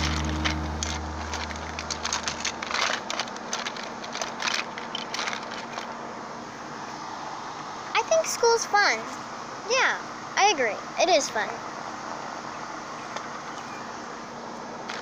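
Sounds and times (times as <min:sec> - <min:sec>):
low humming tone: 0:00.0 - 0:03.3
plastic figures clicking: 0:00.0 - 0:05.9.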